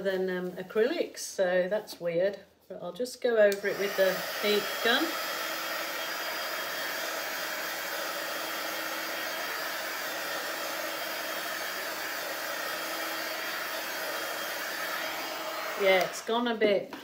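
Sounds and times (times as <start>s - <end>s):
heat gun blowing air: 3.5s - 16.4s.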